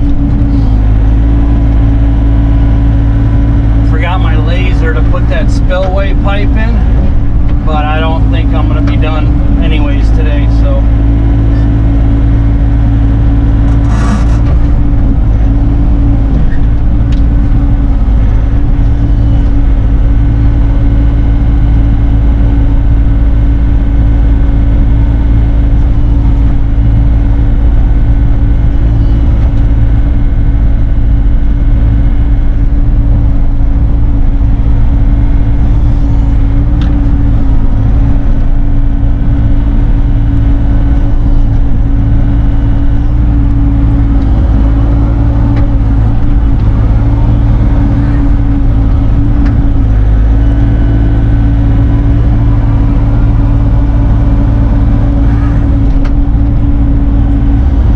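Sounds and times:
excavator diesel engine droning: 0.0s - 57.9s.

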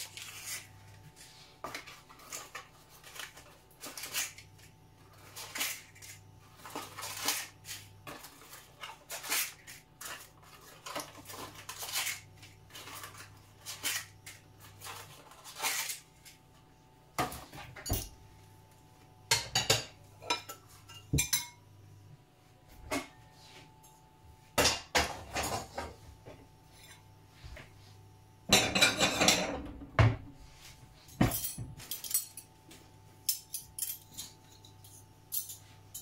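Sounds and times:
dishes and pots clinking: 17.2s - 18.2s, 19.2s - 21.7s, 24.6s - 26.0s, 28.4s - 30.3s, 31.2s - 32.6s.

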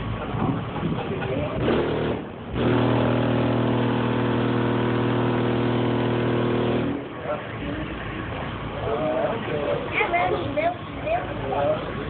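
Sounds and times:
loud steady bass tone: 0.0s - 8.9s.

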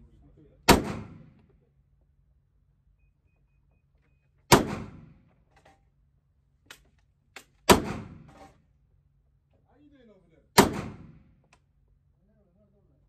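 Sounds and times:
pistol shot echoing: 0.7s - 1.3s, 4.5s - 5.2s, 7.7s - 8.2s, 10.6s - 11.2s.

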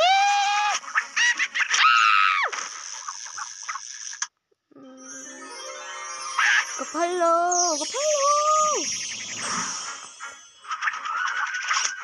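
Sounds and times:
high glittering magic shimmer: 4.8s - 11.7s
voice-like pitched note sliding down: 8.5s - 10.4s.

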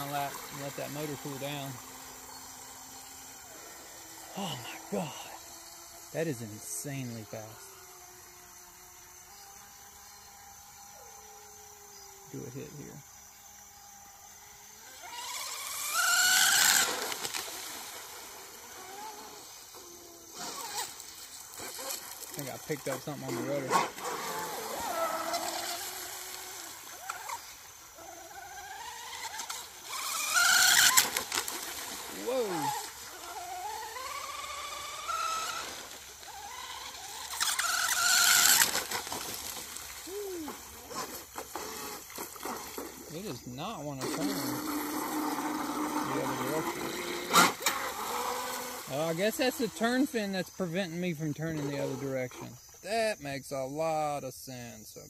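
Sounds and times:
hissing water spray: 0.0s - 8.2s, 14.8s - 50.8s
model boat motor whine: 0.0s - 53.0s.

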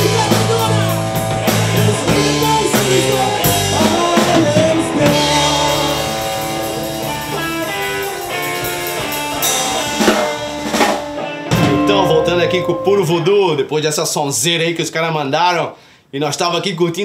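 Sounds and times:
drums: 0.0s - 13.0s
electric guitar: 0.0s - 13.4s.

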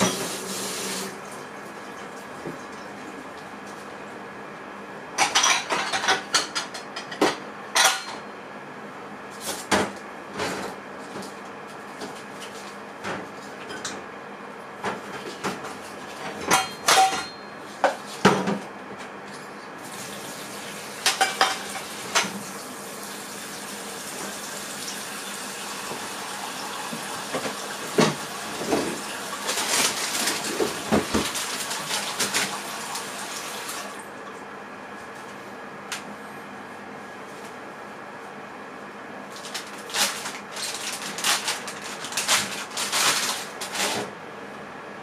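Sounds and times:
microwave oven humming: 0.0s - 45.0s
dishes and cutlery clattering: 16.4s - 17.4s.

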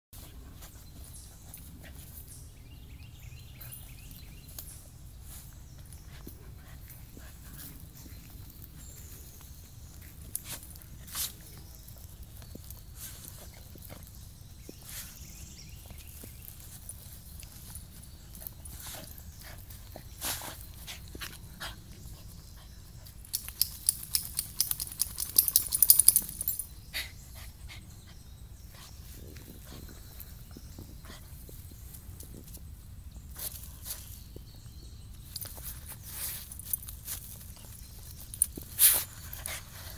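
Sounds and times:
dog rubbing on dirt and leaves: 6.7s - 21.5s, 35.2s - 39.9s
dog tag jingling: 23.2s - 26.8s, 35.2s - 38.8s.

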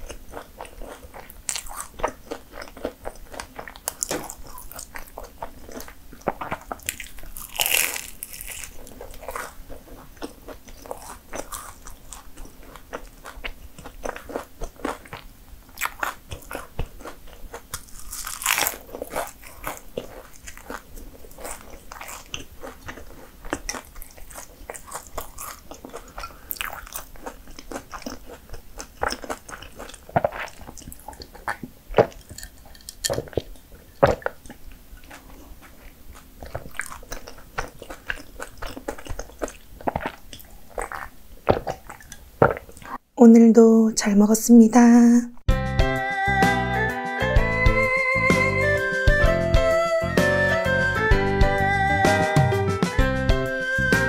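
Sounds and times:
crunching flaky pastry: 0.0s - 43.0s.

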